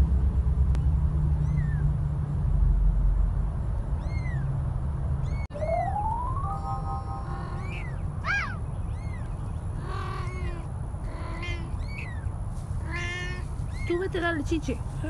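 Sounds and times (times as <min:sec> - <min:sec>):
newborn kittens mewing: 0:07.2 - 0:12.2, 0:12.8 - 0:13.9.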